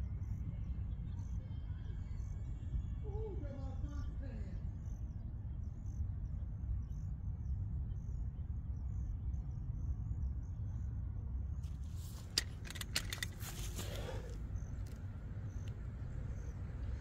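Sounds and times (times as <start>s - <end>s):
low outdoor rumble: 0.0s - 17.0s
sharp rattling clicks: 11.7s - 15.8s.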